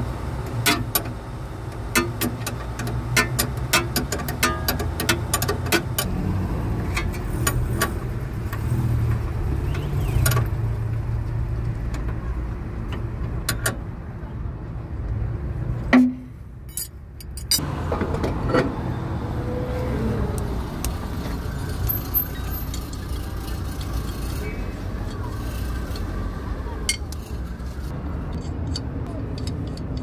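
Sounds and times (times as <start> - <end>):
tools clinking on car parts: 0.6 - 1.1, 1.8 - 6.1, 16.0 - 17.6, 28.3 - 30.0.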